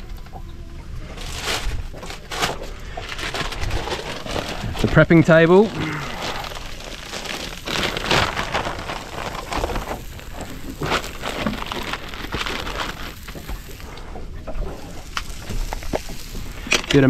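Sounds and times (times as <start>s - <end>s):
plastic packet crinkling: 1.1s - 13.9s
fish sizzling on a grill: 5.1s - 14.0s, 14.8s - 17.0s.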